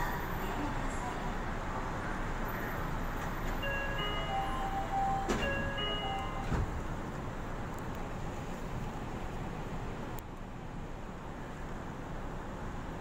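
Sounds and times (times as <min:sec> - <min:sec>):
monorail hum: 0:00.0 - 0:13.0
doors closing clunks: 0:03.2 - 0:07.2
electronic chime melody: 0:03.6 - 0:06.5.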